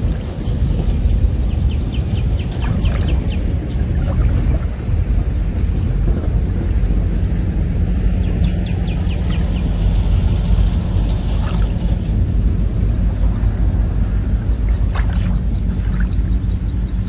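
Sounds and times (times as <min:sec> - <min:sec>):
water splashes: 0:00.0 - 0:05.7, 0:08.4 - 0:17.0
low rumble: 0:00.0 - 0:17.0
water swishing: 0:02.1 - 0:05.5, 0:08.5 - 0:17.0.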